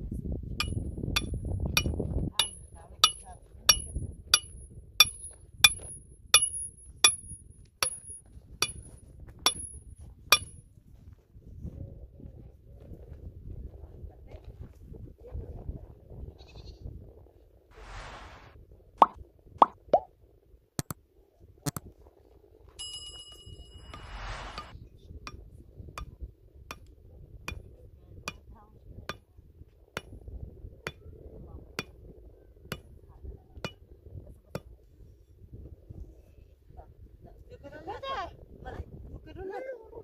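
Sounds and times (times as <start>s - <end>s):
short hissing bursts: 17.8s - 18.6s.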